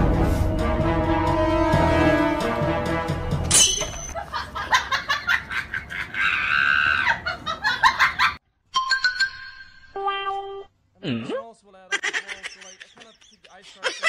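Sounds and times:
person laughing: 4.2s - 8.4s, 11.9s - 14.0s.

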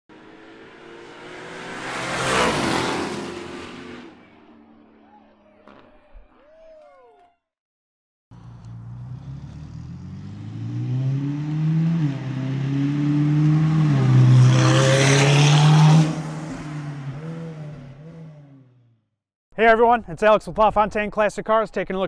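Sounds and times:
sports car accelerating past: 0.1s - 4.8s, 8.4s - 18.6s.

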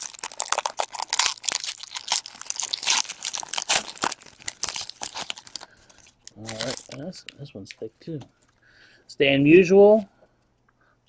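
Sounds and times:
foil wrapper tearing and crinkling: 0.0s - 7.1s.

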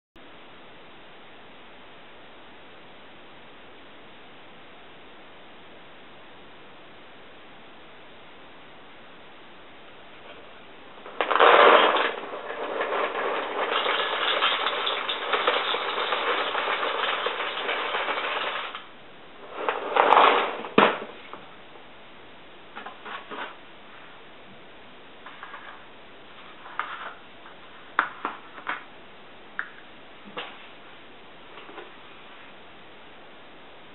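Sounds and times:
cereal pouring into ceramic bowl: 11.1s - 18.9s.

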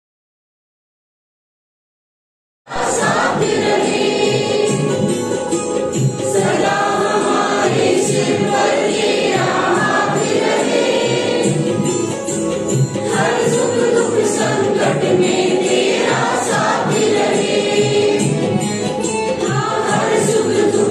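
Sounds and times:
men and women singing together: 2.7s - 5.5s, 6.2s - 12.1s, 12.9s - 20.9s.

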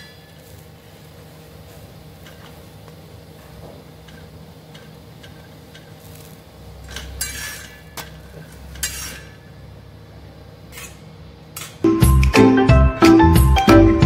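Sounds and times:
metal utensils clinking and scraping: 6.8s - 9.5s.

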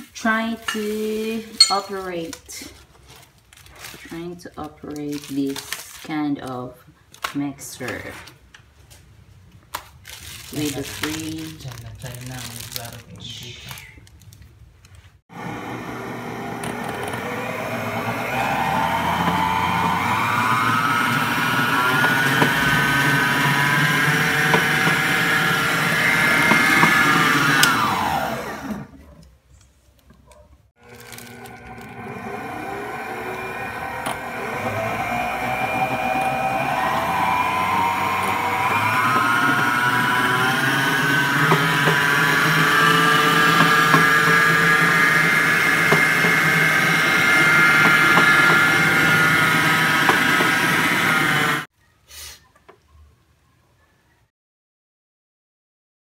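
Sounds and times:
stand mixer motor whining: 15.3s - 29.0s, 30.8s - 51.7s.

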